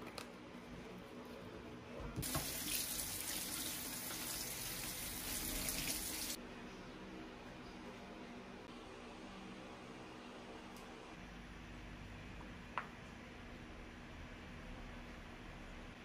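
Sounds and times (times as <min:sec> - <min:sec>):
tap water running: 0:02.2 - 0:06.4.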